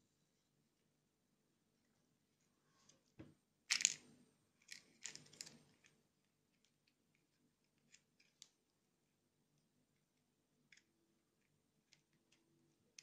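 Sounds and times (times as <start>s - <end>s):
plastic toy clicking and scraping: 4.6s - 8.6s.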